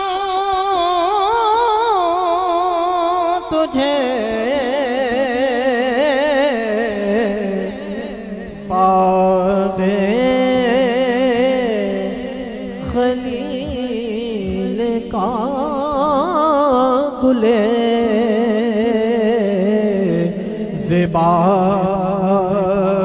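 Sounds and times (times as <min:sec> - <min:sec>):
man singing through microphone: 0:00.0 - 0:23.0.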